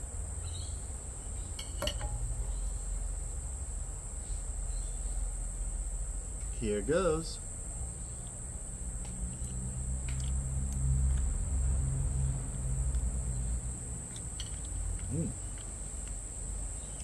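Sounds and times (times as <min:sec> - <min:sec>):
insects droning: 0:00.0 - 0:17.0
short murmur: 0:15.1 - 0:15.4.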